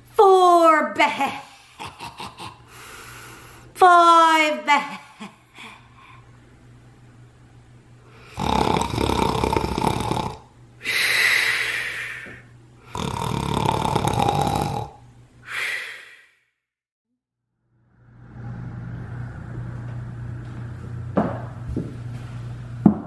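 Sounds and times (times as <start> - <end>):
person snoring: 8.1 - 16.4.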